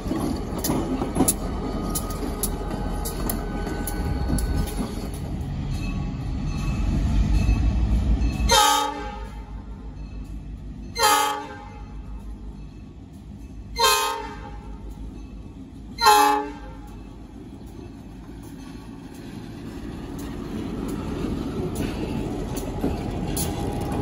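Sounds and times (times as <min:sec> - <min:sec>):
locomotive rumbling past: 0:00.0 - 0:24.0
locomotive air horn blasts: 0:08.5 - 0:09.5, 0:11.0 - 0:12.0, 0:13.8 - 0:14.8, 0:16.0 - 0:16.9.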